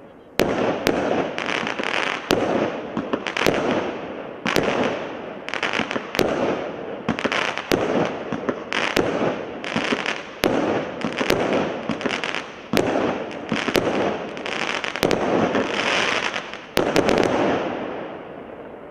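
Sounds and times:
firework bangs: 0.4 - 18.3
firework stars crackling and fizzing: 0.4 - 18.9.

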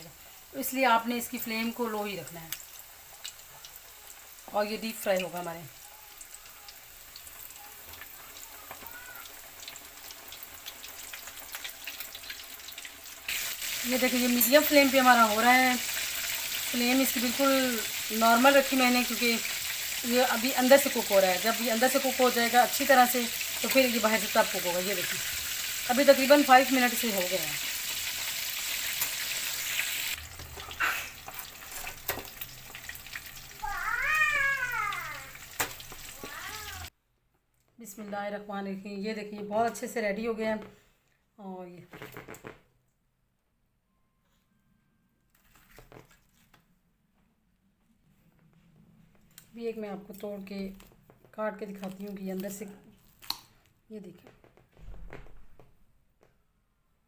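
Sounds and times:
chicken deep-frying in oil: 0.0 - 36.9
crackles and pops: 2.4 - 4.6, 50.7 - 53.6
cat meowing: 33.6 - 35.4, 36.2 - 36.9.

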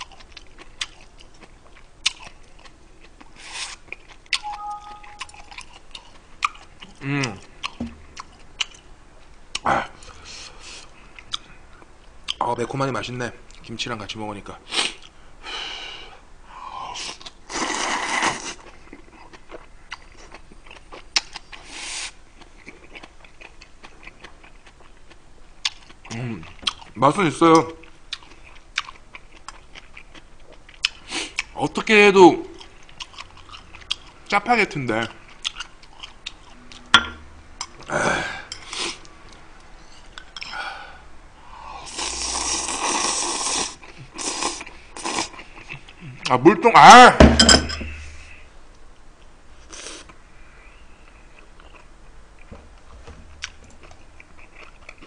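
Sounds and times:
person slurping noodles: 17.0 - 18.6, 41.8 - 45.4
chewing with wet smacks: 22.4 - 27.0, 27.8 - 31.6, 35.1 - 36.9, 53.4 - 55.0.

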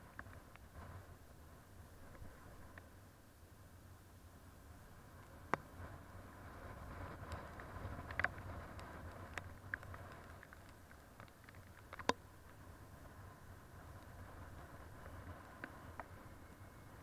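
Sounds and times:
raindrops tapping on camera: 6.8 - 12.6.

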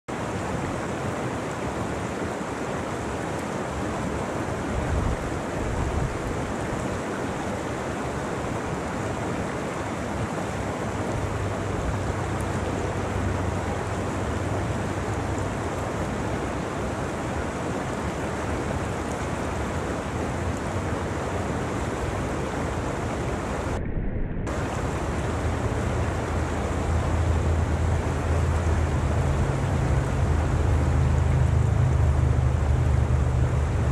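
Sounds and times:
creek rushing over rocks: 0.1 - 33.9
low rumble: 23.5 - 33.9.

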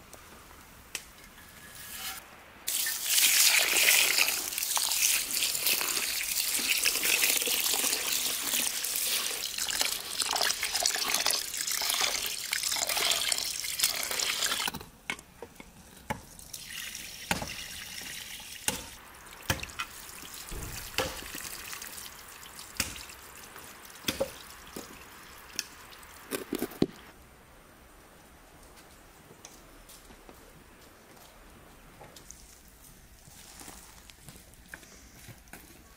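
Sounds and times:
water dripping: 2.7 - 14.8, 16.3 - 27.0.

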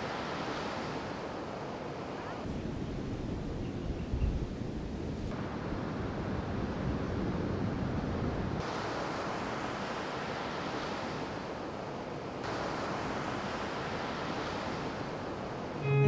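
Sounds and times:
ocean surf on beach: 0.0 - 3.6, 5.0 - 16.0
wind noise on microphone: 2.5 - 8.6.

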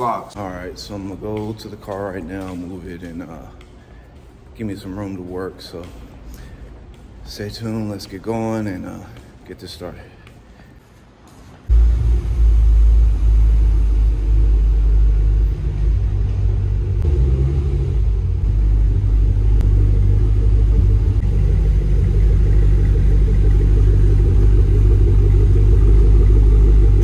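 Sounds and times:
loud car engine running: 11.7 - 27.0.

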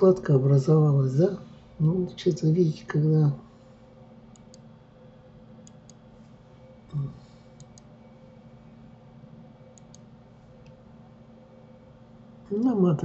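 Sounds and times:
faint steady hum: 0.0 - 13.0
computer mouse clicking: 4.3 - 4.7, 5.6 - 6.0, 7.6 - 7.9, 9.7 - 10.8.

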